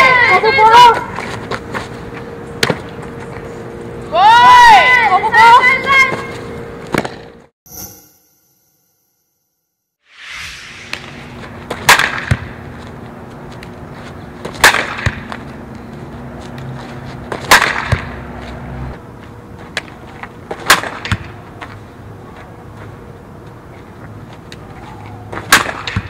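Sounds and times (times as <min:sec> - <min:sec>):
bat cracking softballs: 0:11.4 - 0:12.7, 0:14.4 - 0:15.5, 0:17.2 - 0:18.3, 0:19.7 - 0:21.7, 0:24.4 - 0:26.0.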